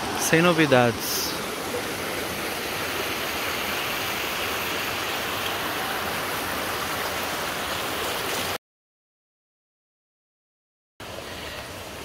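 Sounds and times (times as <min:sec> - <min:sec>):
river water rushing: 0:00.0 - 0:08.6, 0:11.0 - 0:12.0.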